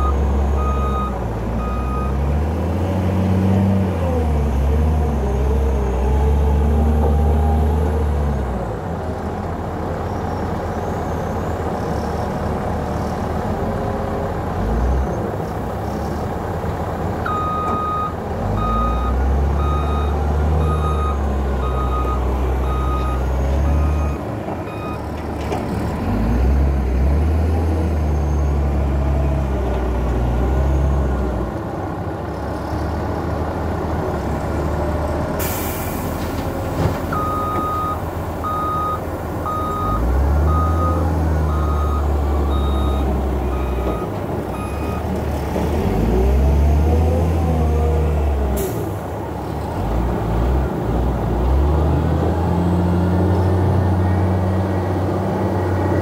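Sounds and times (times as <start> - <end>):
diesel engine revving: 0.0 - 9.9, 11.0 - 56.0
reversing alarm beeping: 37.1 - 45.0.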